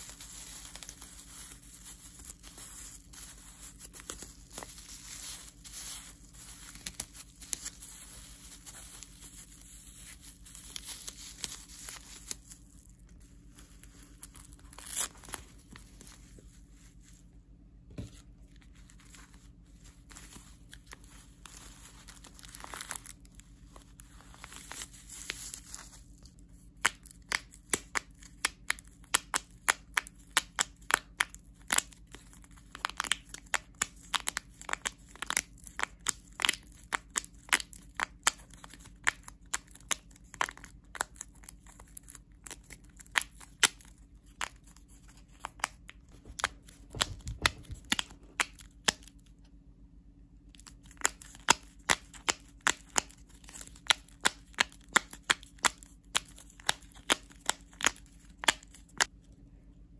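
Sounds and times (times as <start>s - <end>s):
faint steady hum: 0.0s - 59.9s
small objects clicking and snapping: 26.2s - 44.7s, 45.3s - 49.2s, 50.5s - 59.1s.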